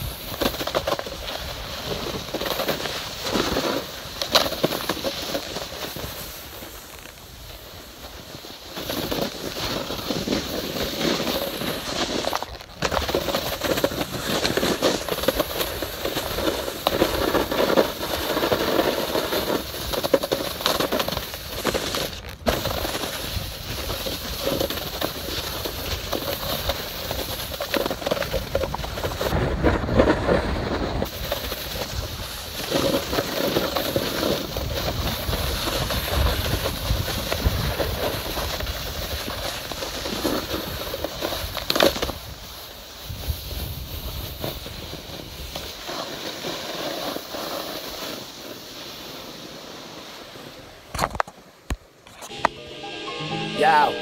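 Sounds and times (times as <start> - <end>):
snowboard scraping over snow: 0.0 - 50.6.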